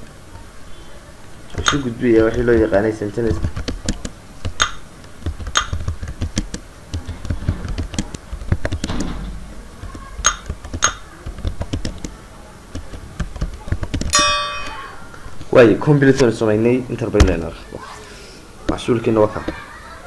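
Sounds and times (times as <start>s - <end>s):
keyboard key clicks: 3.3s - 9.2s, 9.8s - 14.2s
short bright chime: 14.2s - 15.0s.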